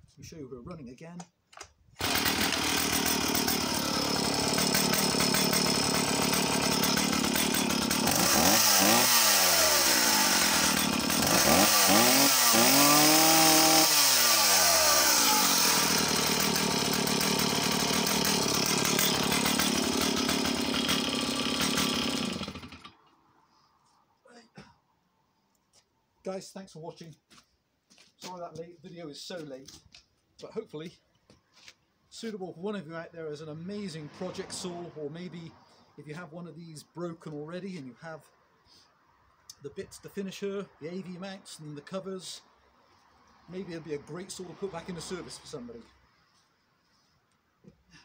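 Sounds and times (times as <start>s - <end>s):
chainsaw starter cord pull: 1.5s - 23.0s
chainsaw engine idling and revving: 2.0s - 23.0s, 43.5s - 45.7s.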